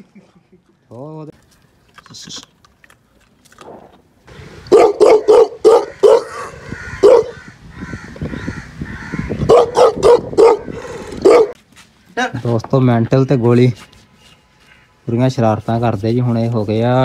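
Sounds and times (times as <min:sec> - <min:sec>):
dog barking: 0:04.7 - 0:06.4, 0:07.0 - 0:07.4, 0:09.5 - 0:11.6.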